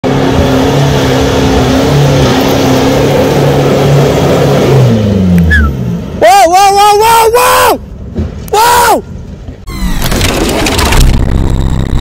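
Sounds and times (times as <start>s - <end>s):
off-road vehicle engine revving: 0.0s - 6.2s.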